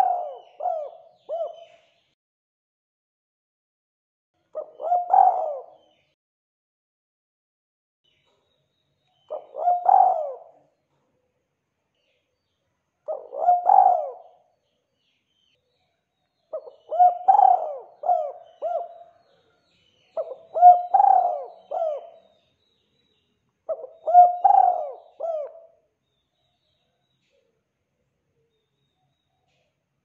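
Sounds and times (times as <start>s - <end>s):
dove cooing: 0.0s - 1.8s, 4.6s - 6.0s, 9.3s - 10.6s, 13.1s - 14.5s, 16.5s - 19.4s, 20.2s - 22.3s, 23.7s - 25.8s.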